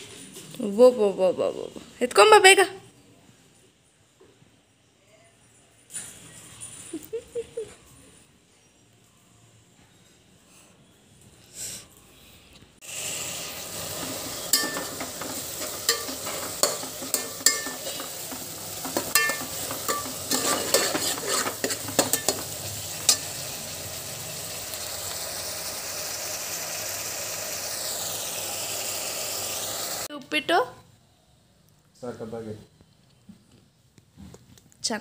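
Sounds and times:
food sizzling in oil: 0:12.8 - 0:30.1
ladle scraping metal pot: 0:13.7 - 0:23.4.

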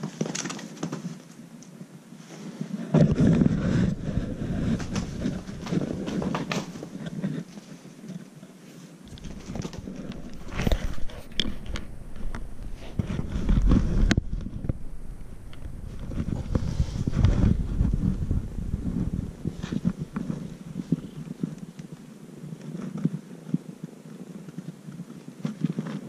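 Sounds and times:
rustling and scuffling on mats: 0:02.1 - 0:08.2, 0:08.8 - 0:14.6.

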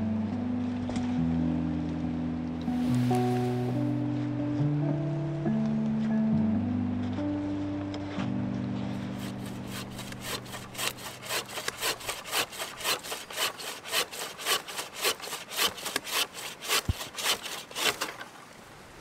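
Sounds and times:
hand saw cutting log: 0:09.0 - 0:18.3.

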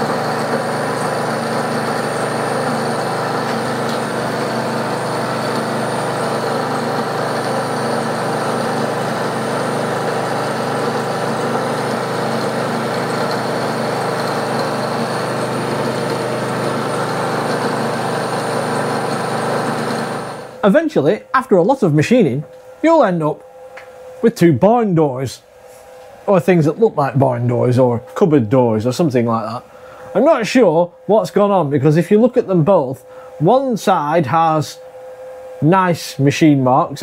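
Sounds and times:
milling machine cutting steel: 0:00.0 - 0:20.7.

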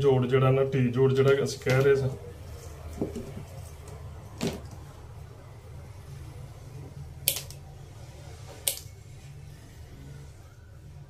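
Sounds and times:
wire cutters snipping wire: 0:07.2 - 0:07.6, 0:08.6 - 0:08.9.

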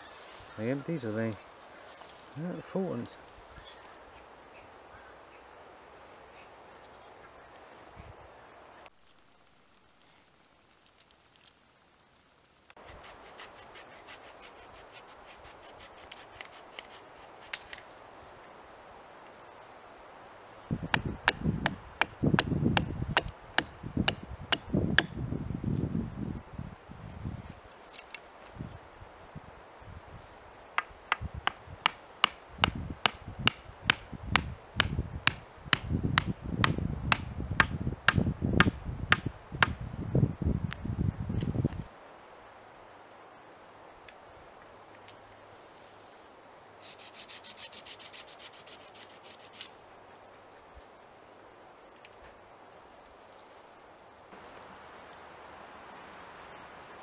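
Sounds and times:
rasping scrape on branch: 0:12.8 - 0:17.8, 0:46.8 - 0:49.8
hatchet knocking wooden peg: 0:20.9 - 0:25.2, 0:30.8 - 0:39.8
dry wood cracking: 0:27.9 - 0:28.6.

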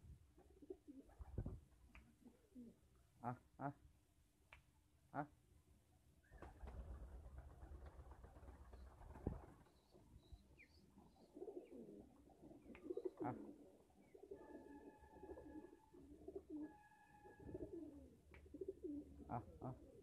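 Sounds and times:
pigeons cooing: 0:02.2 - 0:02.8, 0:11.0 - 0:20.0.

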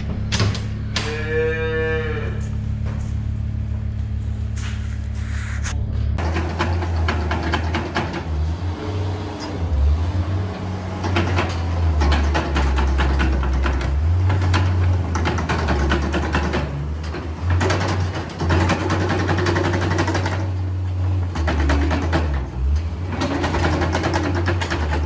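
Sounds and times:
diesel engine droning: 0:00.0 - 0:25.0
loader rattling and clanking: 0:06.2 - 0:25.0.

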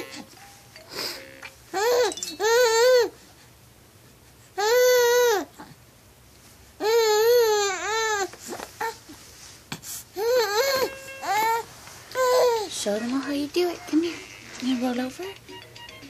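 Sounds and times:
baby cooing and babbling: 0:01.7 - 0:03.2, 0:04.6 - 0:05.8, 0:06.8 - 0:09.0, 0:10.2 - 0:15.0.

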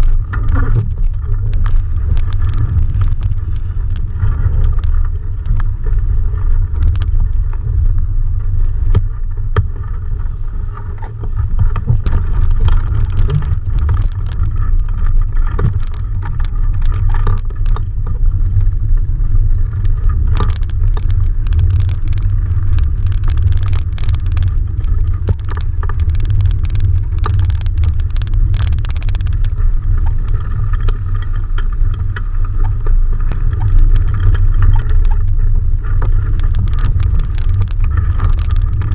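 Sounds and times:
crackling and clicks: 0:00.0 - 0:38.9
wind buffeting microphone: 0:00.0 - 0:38.9.

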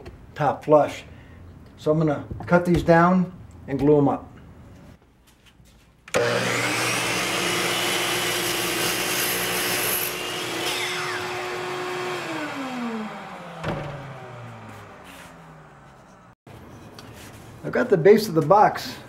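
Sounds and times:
miter saw cutting wood: 0:06.1 - 0:16.4
saw spinning down whine: 0:06.2 - 0:16.2.

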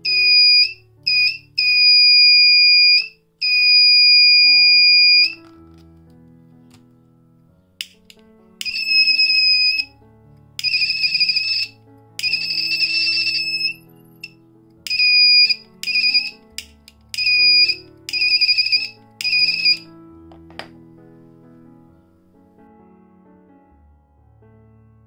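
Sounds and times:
alarm buzzer beeping: 0:00.0 - 0:05.4, 0:08.6 - 0:09.8, 0:10.6 - 0:13.8, 0:14.9 - 0:16.4, 0:17.2 - 0:19.8
soft background music: 0:00.0 - 0:25.0.

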